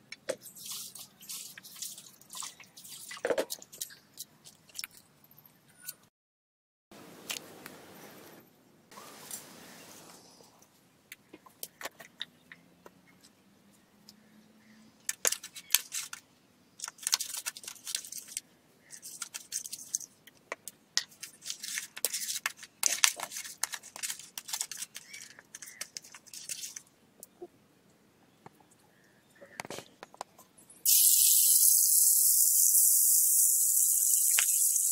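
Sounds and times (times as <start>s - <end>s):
hands rubbing fish: 16.8s - 20.1s, 21.0s - 26.8s.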